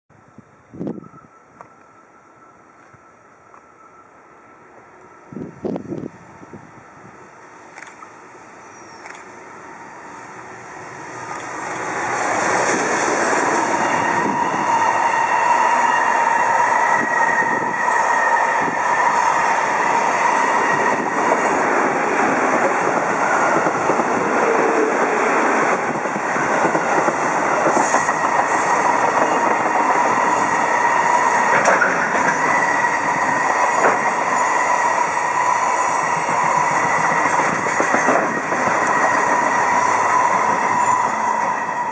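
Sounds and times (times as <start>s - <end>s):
electric train passing: 0.2s - 41.9s
freight train rolling past: 0.2s - 41.9s
rail joint clicks: 0.8s - 3.9s, 7.4s - 15.0s, 15.8s - 41.9s
faint ringing tone: 0.8s - 5.3s.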